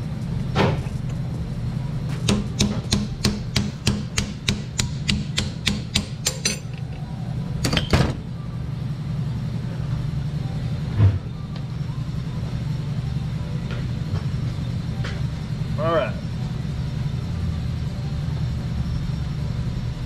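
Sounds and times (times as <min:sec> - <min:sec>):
steady low hum: 0:00.0 - 0:20.0
hammer striking metal: 0:02.2 - 0:06.8.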